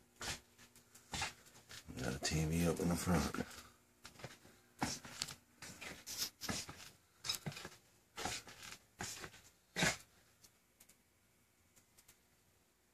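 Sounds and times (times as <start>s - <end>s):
footsteps scuffing on floor: 0.2s - 2.4s, 3.1s - 10.1s
rustling: 3.1s - 11.0s.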